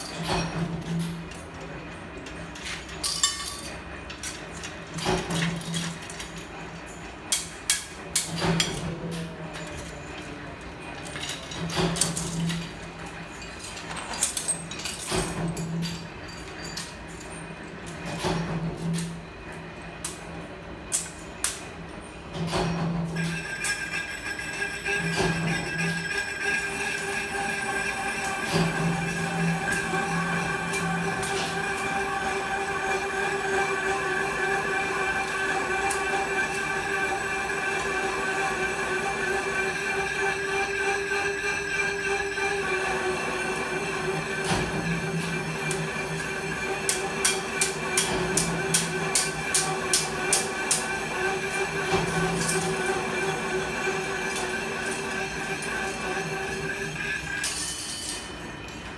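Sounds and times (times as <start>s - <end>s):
electric motor hum and whine: 23.2s - 57.5s.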